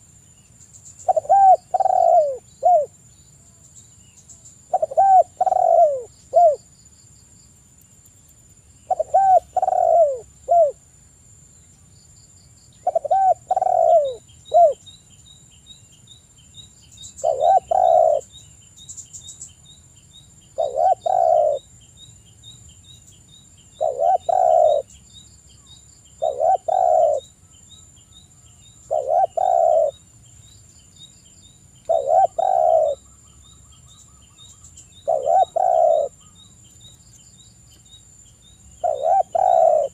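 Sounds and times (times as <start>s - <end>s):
dove cooing: 1.0s - 2.9s, 4.7s - 6.6s, 8.9s - 10.8s, 12.8s - 14.8s, 17.2s - 18.3s, 20.6s - 21.6s, 23.8s - 24.9s, 26.2s - 27.3s, 28.9s - 30.0s, 31.9s - 33.0s, 35.0s - 36.3s, 38.8s - 39.9s.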